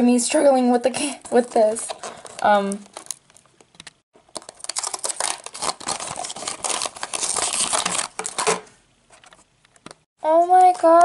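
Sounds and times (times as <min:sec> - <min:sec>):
foil seal tearing and crinkling: 0:01.7 - 0:08.7.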